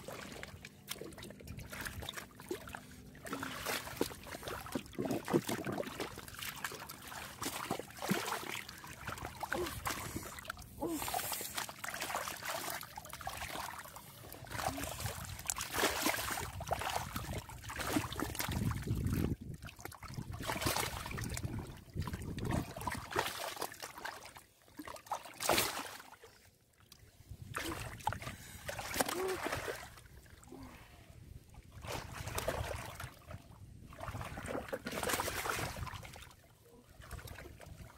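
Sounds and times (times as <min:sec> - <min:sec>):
water sloshing and splashing: 0:00.0 - 0:37.9.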